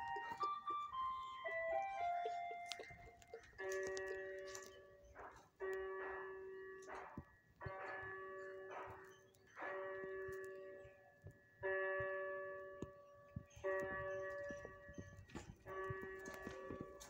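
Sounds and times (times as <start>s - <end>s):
bell-like chiming: 0.0s - 6.1s.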